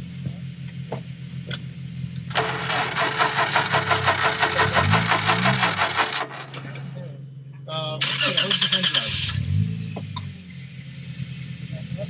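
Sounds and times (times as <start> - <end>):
car engine idling: 0.0 - 12.0
loud rapid mechanical rattle: 2.3 - 7.1.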